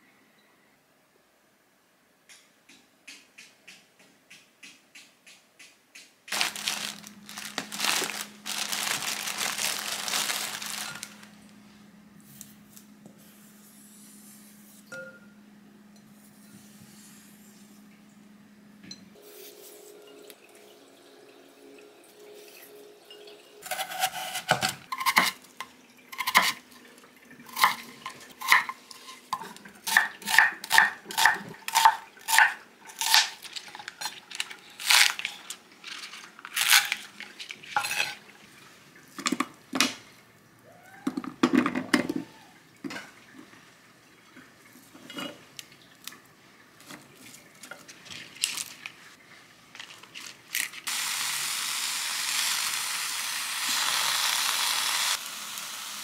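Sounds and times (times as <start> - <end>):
plastic packaging crinkling: 6.3 - 11.6, 33.2 - 38.2, 47.9 - 49.0.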